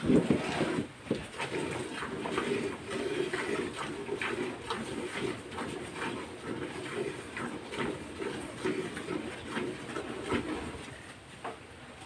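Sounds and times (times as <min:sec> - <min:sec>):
milk squirting into metal pail: 0:00.0 - 0:10.8.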